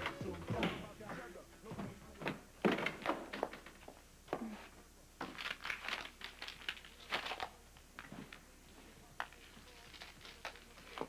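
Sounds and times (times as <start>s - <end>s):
rustling and crinkling: 5.2s - 11.0s.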